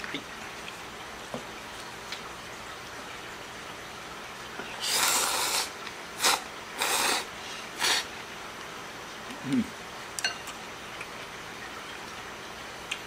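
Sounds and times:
noodles slurped: 0:04.8 - 0:08.1.

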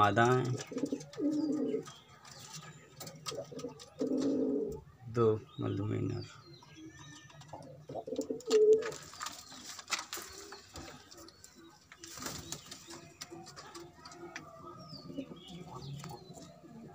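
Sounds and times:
pigeons cooing: 0:00.0 - 0:04.8, 0:06.0 - 0:09.6, 0:10.2 - 0:16.9
rustling: 0:08.5 - 0:13.0.

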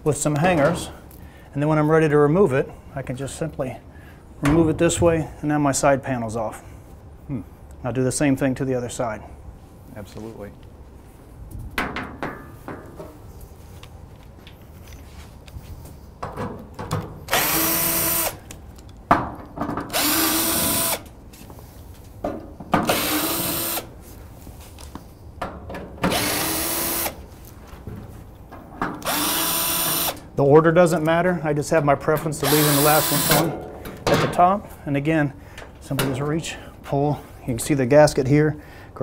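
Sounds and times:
cordless drill whining: 0:17.3 - 0:18.5, 0:19.9 - 0:21.0, 0:22.9 - 0:23.9, 0:26.1 - 0:27.2, 0:29.0 - 0:30.2, 0:32.4 - 0:33.5.

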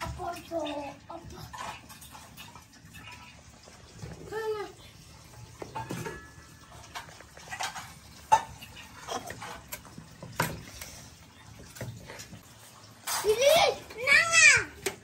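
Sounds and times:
steel pot and plate clinking: 0:05.3 - 0:10.9.

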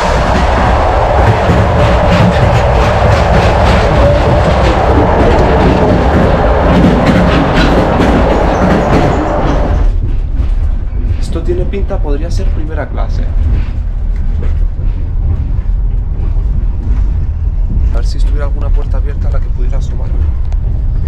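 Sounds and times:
train wheels rattling and rumbling: 0:00.0 - 0:21.0.

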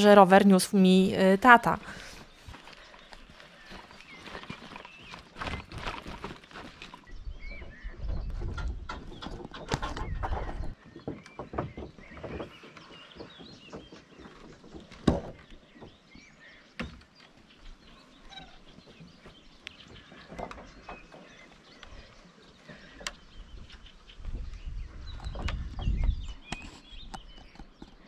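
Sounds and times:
birds chirping faintly: 0:00.0 - 0:28.0
footsteps on wooden planks: 0:01.8 - 0:28.0.

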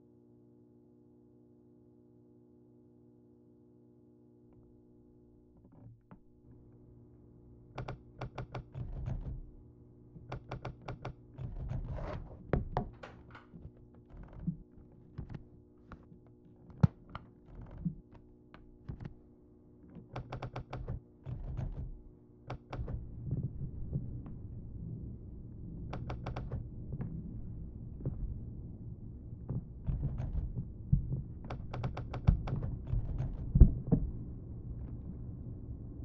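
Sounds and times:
low steady drone: 0:23.0 - 0:31.6, 0:32.5 - 0:36.0.

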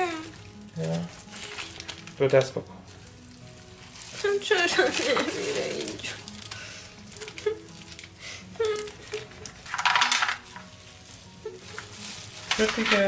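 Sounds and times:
dough sizzling: 0:00.0 - 0:13.0
pebbles clicking: 0:03.2 - 0:13.0.

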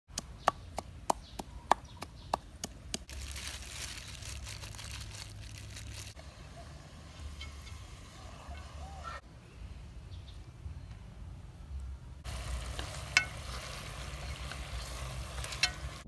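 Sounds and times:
gloved hands kneading meat: 0:00.2 - 0:06.2.

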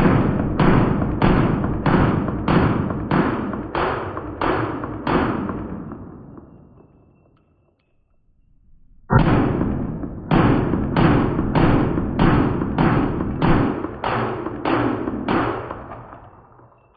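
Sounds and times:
pistol shots: 0:09.1 - 0:16.4.

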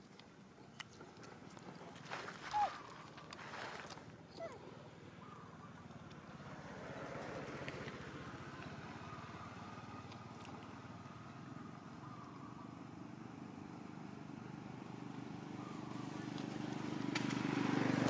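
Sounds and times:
vehicle engine humming: 0:04.4 - 0:18.0.

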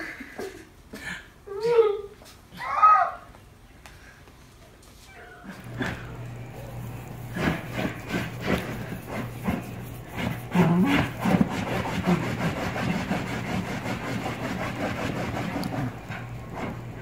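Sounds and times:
dog grumbling: 0:05.4 - 0:09.6, 0:10.2 - 0:12.4
dog paws scratching leather: 0:05.6 - 0:17.0.

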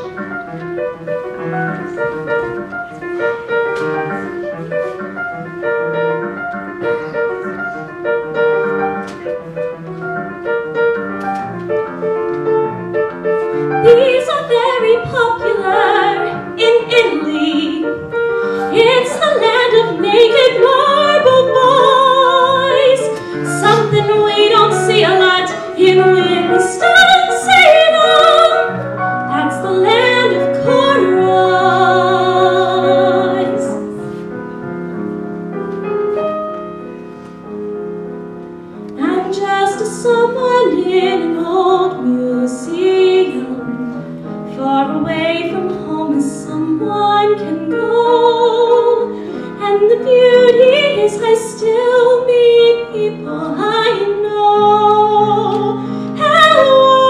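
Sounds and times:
piano accompaniment: 0:00.0 - 0:57.0
woman singing classical style: 0:12.7 - 0:34.1, 0:38.8 - 0:57.0.

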